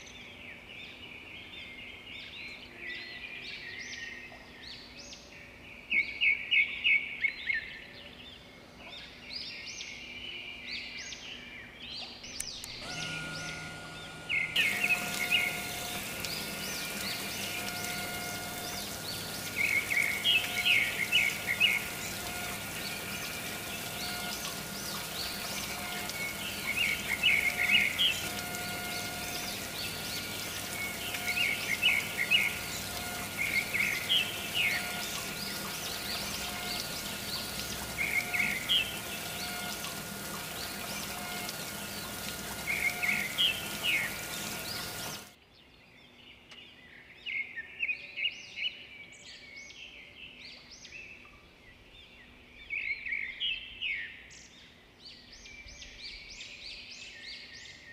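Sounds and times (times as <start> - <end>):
small birds chirping: 12.0 - 45.3
steady hum: 12.5 - 45.3.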